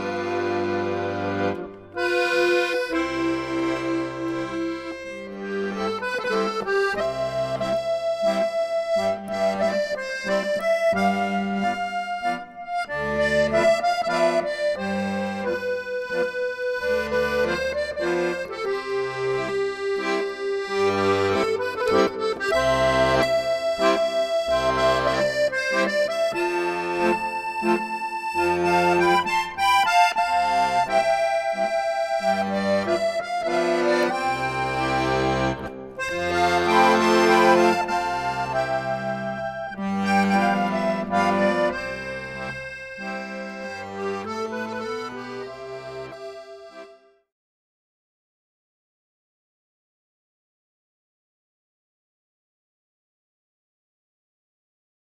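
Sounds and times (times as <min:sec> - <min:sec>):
instrumental background music: 0:00.0 - 0:47.1.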